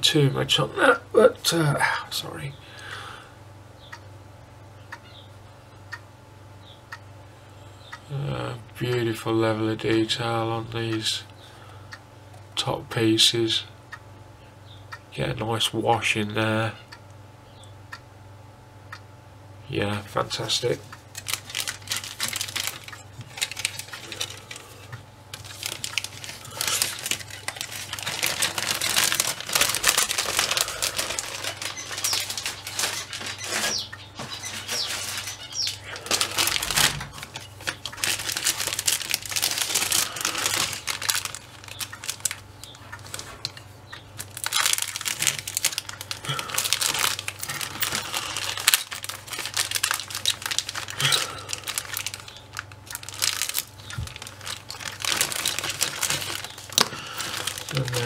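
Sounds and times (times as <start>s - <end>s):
plastic packaging crinkling: 20.3s - 43.6s, 44.2s - 58.0s.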